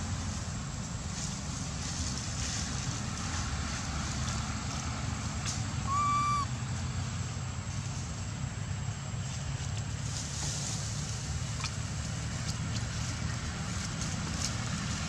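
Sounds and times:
short high-pitched call: 5.8 - 6.5.

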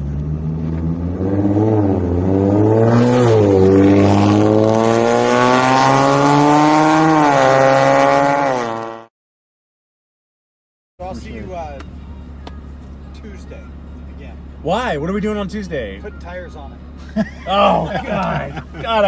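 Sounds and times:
car accelerating hard: 0.0 - 9.1.

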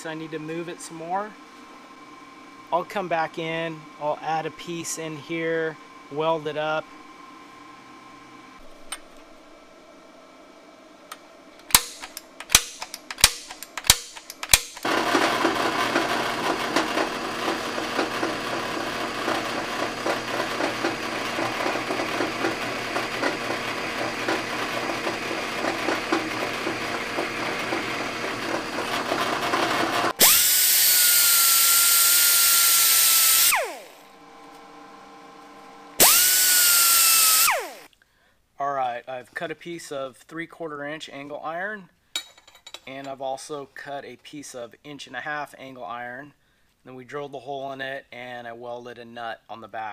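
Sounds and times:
centre punch clicks on steel: 11.1 - 14.9
drill press drilling steel: 11.7 - 37.9
air grinder whine: 11.8 - 37.9.

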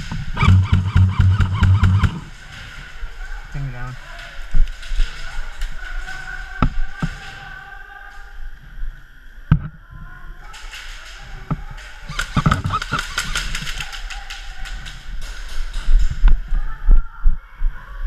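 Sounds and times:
sharp knocks and clicks: 0.0 - 2.3, 12.2 - 13.6
quick run of clicks: 12.1 - 16.4.

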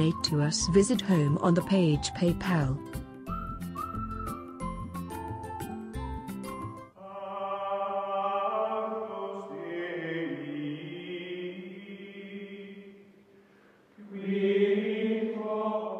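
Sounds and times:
choir-like music chords: 6.9 - 13.0, 14.0 - 15.9.

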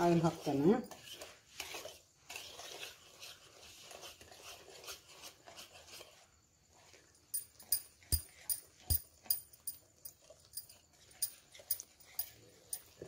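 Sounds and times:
whisk scraping batter in bowl: 0.0 - 7.1.

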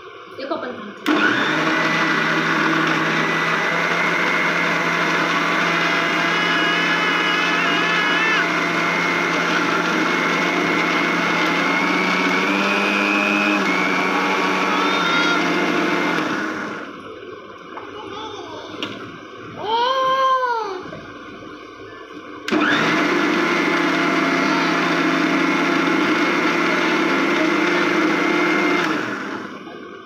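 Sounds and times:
mixer grinder running: 1.0 - 17.8, 22.5 - 30.0.

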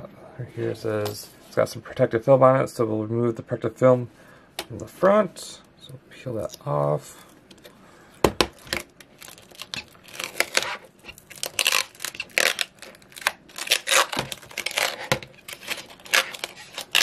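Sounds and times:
plastic film peeling and crinkling: 8.5 - 17.0.

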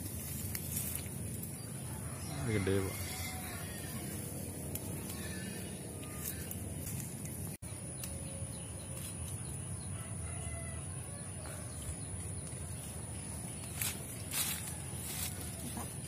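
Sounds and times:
low outdoor rumble: 0.0 - 16.0
distant chickens clucking: 1.8 - 6.4.

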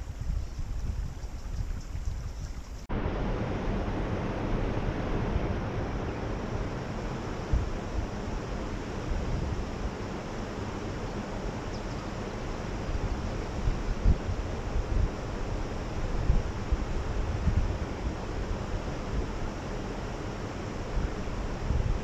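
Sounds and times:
wind buffeting microphone: 0.0 - 10.1, 11.4 - 20.1, 20.8 - 22.0.

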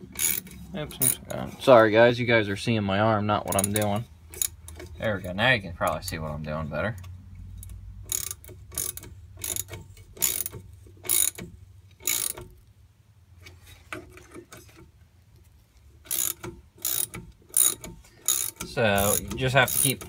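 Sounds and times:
socket ratchet clicking: 0.1 - 1.2, 3.5 - 4.9, 7.6 - 12.5, 16.1 - 20.0.

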